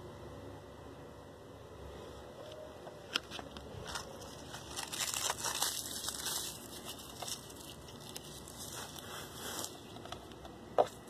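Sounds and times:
fingers crumbling dry flakes: 0:03.2 - 0:11.0.

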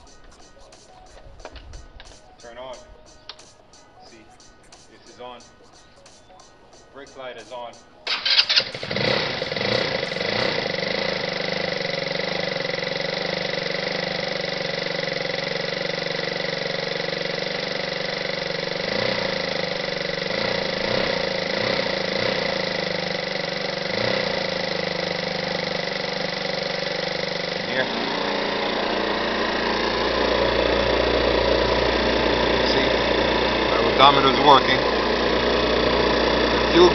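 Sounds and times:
scooter engine starting and idling: 0:08.0 - 0:36.9.

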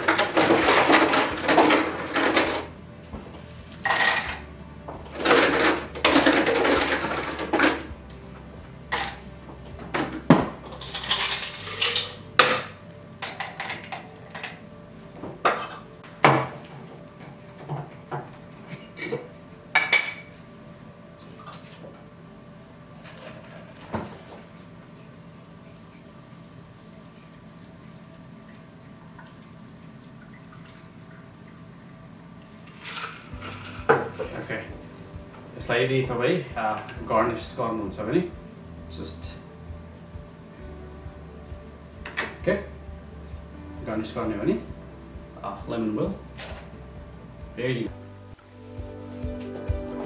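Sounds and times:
ice cubes clinking in glass: 0:10.7 - 0:12.2.

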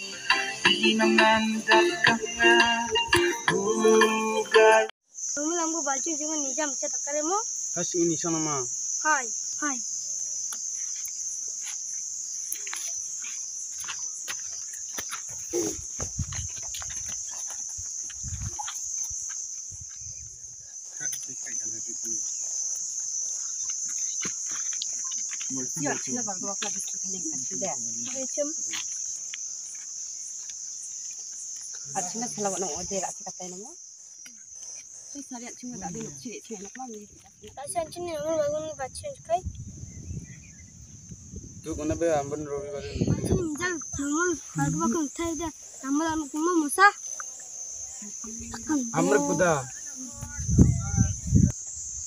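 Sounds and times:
insects droning: 0:00.0 - 0:52.0
footsteps on gravel: 0:12.5 - 0:20.0, 0:22.2 - 0:26.9.

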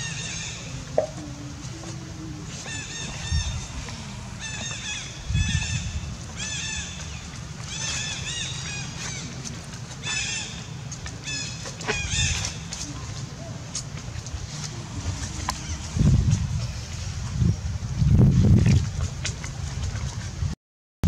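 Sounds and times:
fowl calling: 0:00.0 - 0:09.4, 0:14.5 - 0:16.4.

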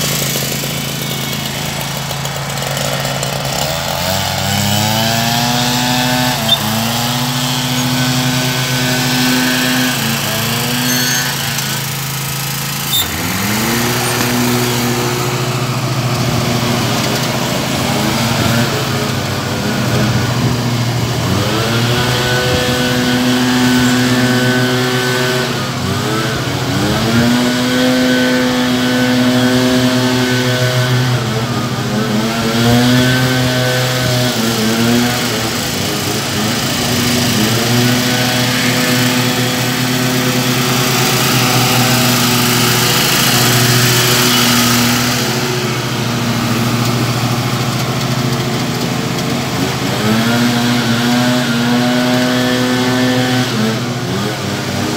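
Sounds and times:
lawn mower engine running: 0:00.0 - 0:54.9.

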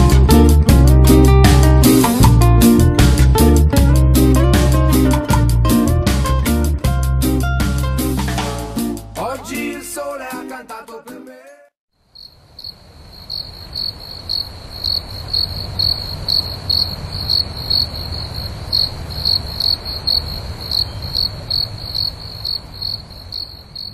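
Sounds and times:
insects chirping: 0:12.0 - 0:23.9.

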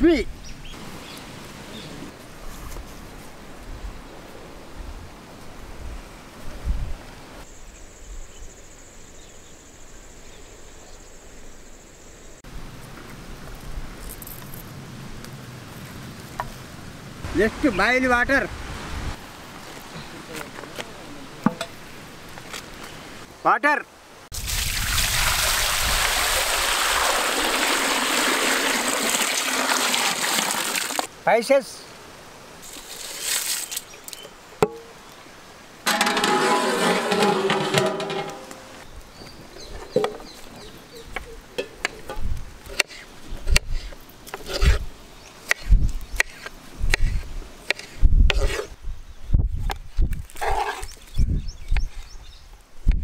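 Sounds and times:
water pouring into metal pot: 0:24.4 - 0:31.0.

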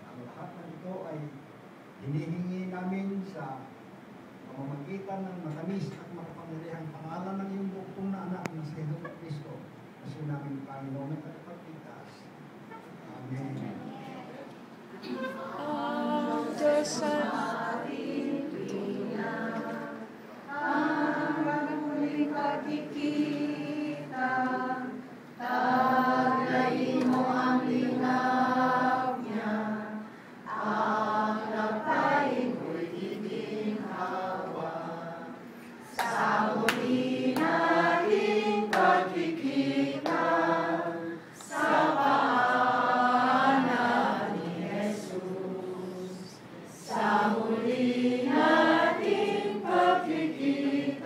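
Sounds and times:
group of people singing: 0:15.0 - 0:51.0.

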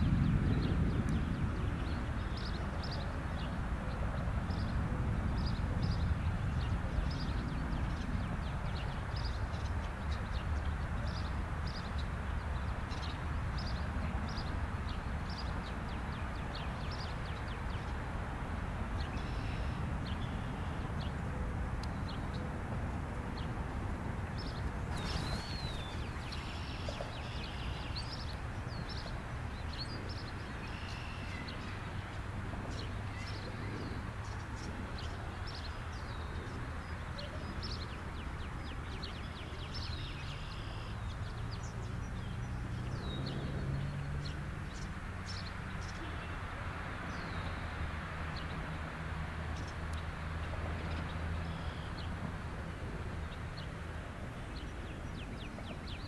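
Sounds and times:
birds chirping and calling: 0:24.4 - 0:29.1.

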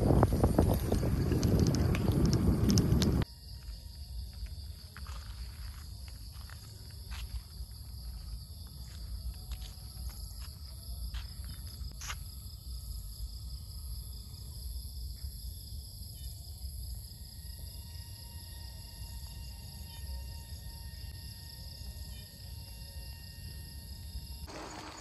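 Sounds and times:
low rumble: 0:00.0 - 0:03.2
insects chorus: 0:00.0 - 0:25.0.

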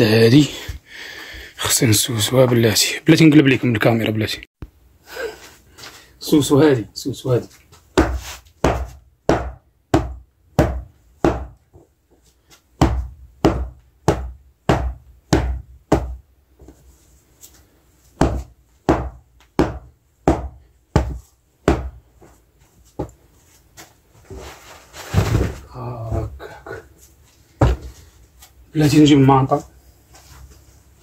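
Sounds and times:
bedding being beaten by hand: 0:07.9 - 0:11.8, 0:12.7 - 0:16.8, 0:18.1 - 0:22.2.

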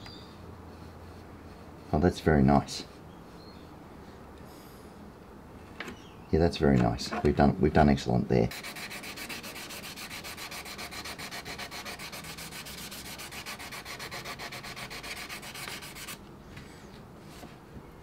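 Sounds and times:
hand sanding plastic: 0:08.5 - 0:16.2.

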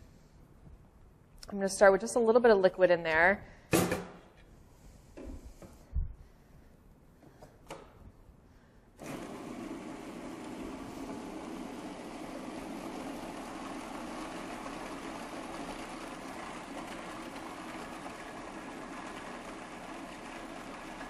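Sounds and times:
food processor running: 0:09.0 - 0:21.0.

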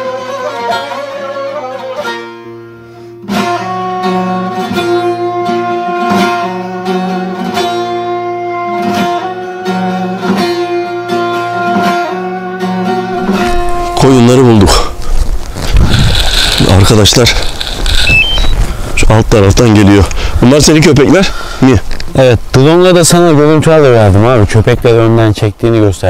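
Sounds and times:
plucked string melody: 0:00.0 - 0:14.3.

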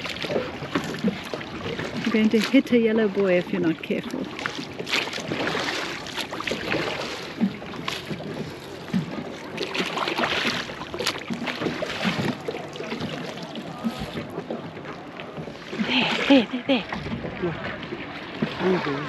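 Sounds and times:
water splashing around oars: 0:00.0 - 0:19.0.

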